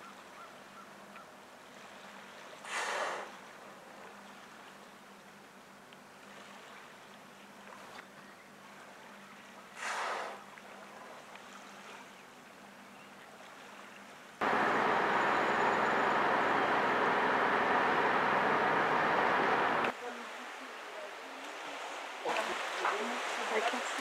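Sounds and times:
faint hiss of calm water: 0.0 - 24.0
whale blow exhale: 2.6 - 3.4, 9.8 - 10.4
loud steady rushing noise: 14.4 - 19.9.

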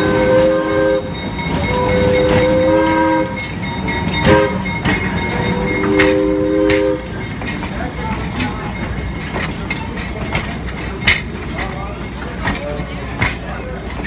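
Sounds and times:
locomotive air horn blasts: 0.0 - 3.5, 4.2 - 4.7, 5.4 - 7.1
metallic clanks from train cars: 0.0 - 14.0
train rumbling past: 0.0 - 14.0.

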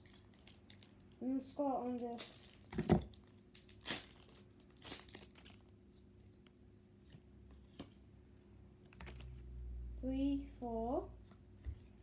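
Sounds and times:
foil wrapper tearing and crinkling: 0.0 - 5.7.

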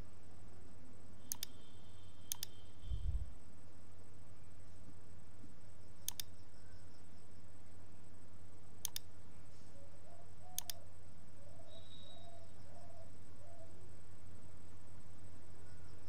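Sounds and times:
steady low hum: 0.0 - 16.0
computer mouse double clicks: 1.3 - 1.6, 2.3 - 2.6, 6.1 - 6.3, 8.8 - 9.1, 10.6 - 10.8.

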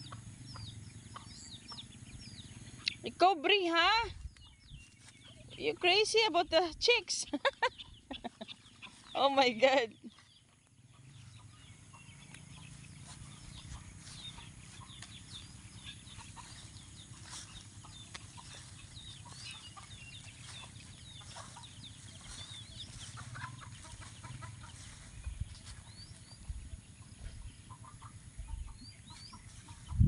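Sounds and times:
chicks peeping and chirping: 0.0 - 30.0
low steady rumble: 10.6 - 30.0.

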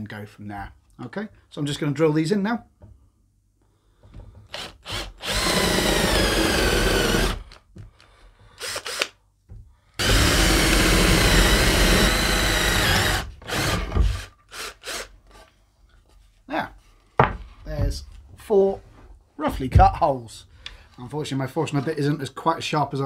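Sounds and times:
cordless drill boring wood: 4.4 - 7.6, 8.6 - 9.2, 10.0 - 15.4
drill trigger blips: 8.6 - 9.2, 10.0 - 13.9.

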